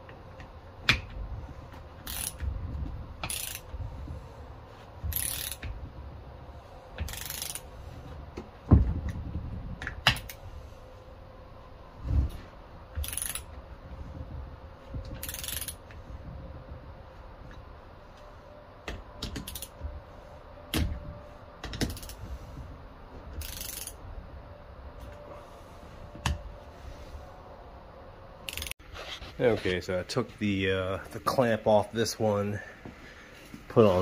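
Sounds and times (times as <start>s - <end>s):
ratchet wrench clicking: 2.0s - 2.5s, 3.2s - 3.7s, 5.1s - 5.7s, 7.0s - 7.7s, 13.0s - 13.5s, 15.2s - 15.9s, 19.2s - 19.7s, 21.8s - 22.2s, 23.4s - 24.0s, 28.5s - 28.7s.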